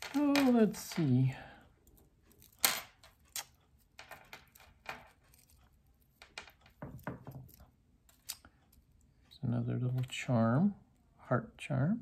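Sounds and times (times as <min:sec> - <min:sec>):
metal jewelry clinking: 0:00.0 - 0:09.0.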